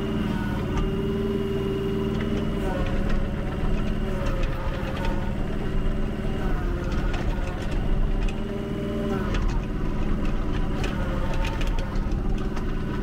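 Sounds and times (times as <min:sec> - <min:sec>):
excavator diesel engine running: 0:00.0 - 0:13.0
machine clicks and clanks: 0:09.3 - 0:13.0.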